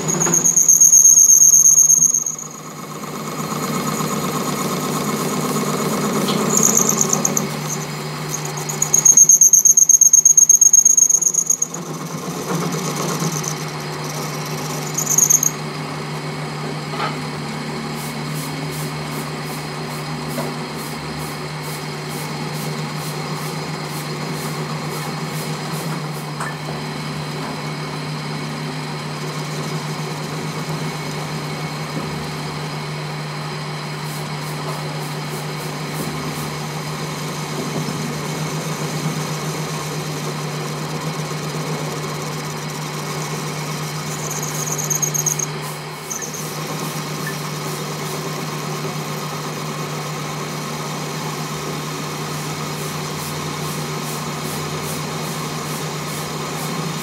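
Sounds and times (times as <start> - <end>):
high squeal: 0.0 - 15.6, 38.4 - 47.9
lathe humming: 0.0 - 16.6, 22.2 - 34.4, 35.2 - 57.0
metal cutting noise: 2.0 - 9.2, 38.3 - 48.4.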